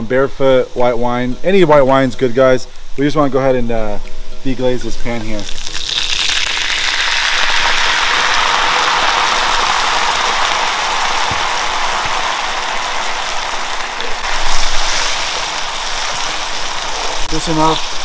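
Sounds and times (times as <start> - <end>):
wine sizzling in a hot pan: 4.4 - 18.0.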